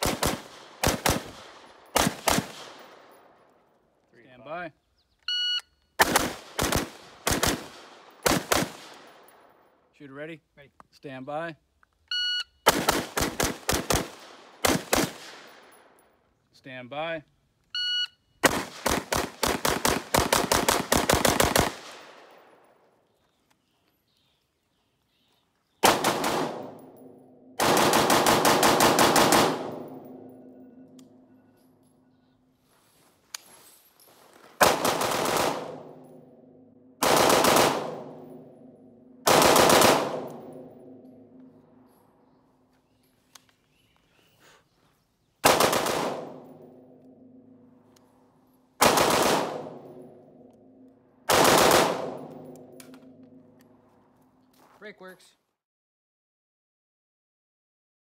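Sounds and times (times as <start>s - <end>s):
rifle gunshots with echo: 0.0s - 3.4s, 6.0s - 9.6s, 12.7s - 16.0s, 18.4s - 22.8s, 25.8s - 31.4s, 34.6s - 41.6s, 45.4s - 47.7s, 48.8s - 50.4s, 51.2s - 52.9s.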